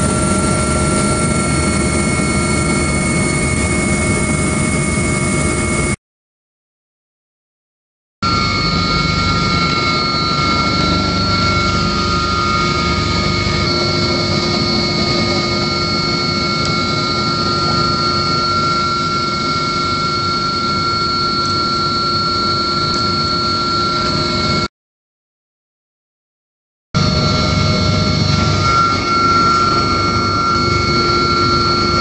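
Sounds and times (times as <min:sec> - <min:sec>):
engine and rotor rush: 0:00.0 - 0:06.0, 0:08.2 - 0:24.7, 0:27.0 - 0:32.0
helicopter turbine whine: 0:00.0 - 0:06.0, 0:08.2 - 0:24.7, 0:27.0 - 0:32.0.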